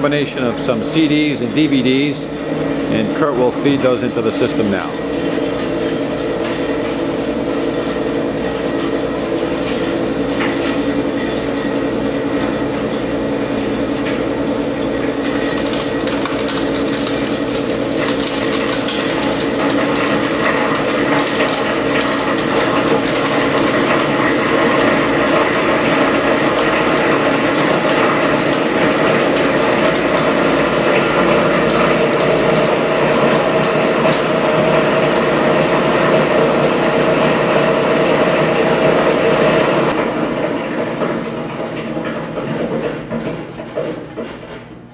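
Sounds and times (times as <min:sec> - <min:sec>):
dense rapid crackle of chopping discs: 0:00.0 - 0:40.0
disintegrator machine humming: 0:00.0 - 0:44.9.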